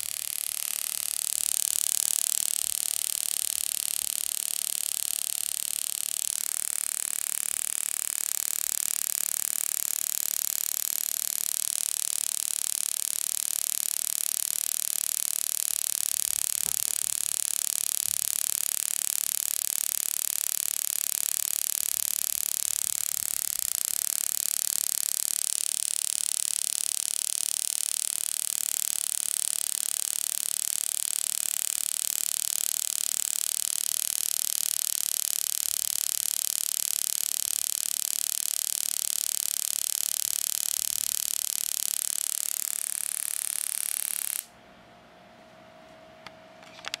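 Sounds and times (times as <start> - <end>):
tesla coil buzzing hiss: 0.0 - 44.5
clicks: 46.2 - 47.0.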